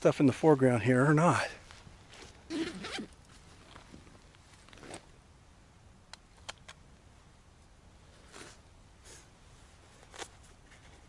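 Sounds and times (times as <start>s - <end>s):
zipper-like scrape: 2.5s - 3.1s
small sharp clicks: 6.1s - 6.8s.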